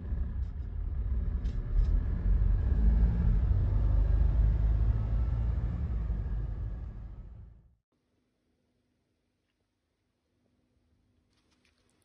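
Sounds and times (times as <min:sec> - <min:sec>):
car rumbling on the move: 0:00.0 - 0:07.7.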